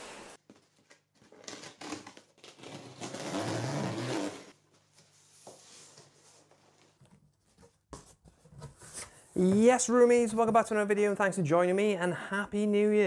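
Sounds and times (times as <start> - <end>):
tape and cardboard ripping: 1.2 - 4.5.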